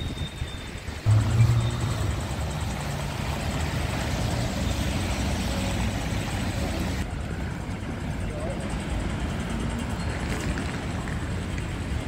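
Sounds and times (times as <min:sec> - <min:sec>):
street traffic rumble: 0:00.0 - 0:12.0
vehicle engine running: 0:01.0 - 0:07.0.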